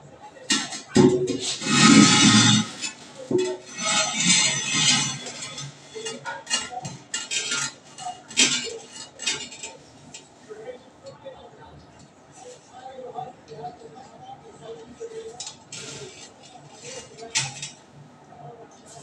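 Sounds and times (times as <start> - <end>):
ceramic toilet scraping: 0.5 - 9.8.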